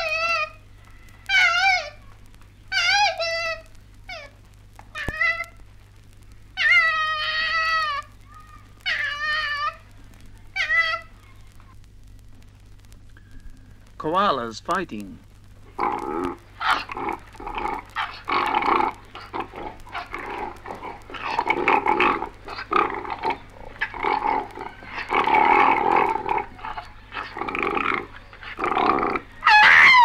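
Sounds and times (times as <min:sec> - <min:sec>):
koalas grunting and bellowing: 0:15.6 - 0:30.0
koala high scream: 0:29.2 - 0:30.0.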